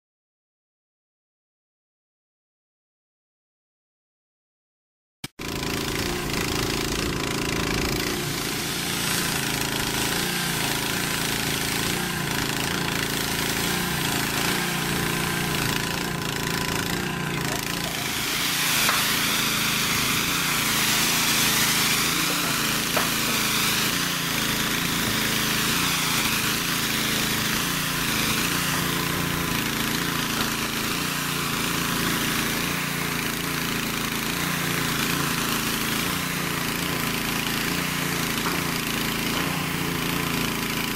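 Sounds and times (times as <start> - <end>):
paint sprayer running: 5.3 - 40.9
hiss of paint spraying: 8.1 - 16.0, 17.8 - 33.0.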